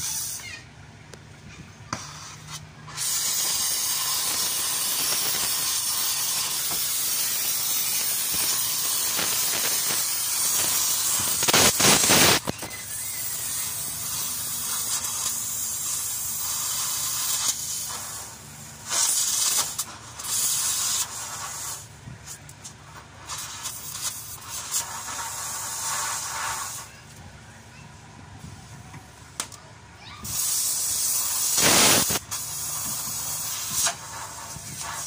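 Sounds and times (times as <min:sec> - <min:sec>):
cutting torch hissing: 0:00.0 - 0:00.6, 0:01.9 - 0:27.0, 0:30.2 - 0:35.0
rush of gas: 0:02.0 - 0:22.0, 0:23.2 - 0:27.0, 0:30.2 - 0:35.0.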